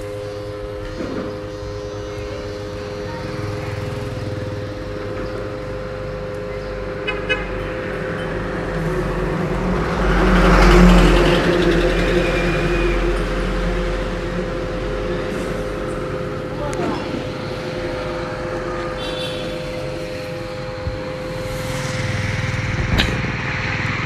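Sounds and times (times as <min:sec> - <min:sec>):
steady traffic hum: 0:00.0 - 0:24.0
vehicle passing close by: 0:07.6 - 0:24.0.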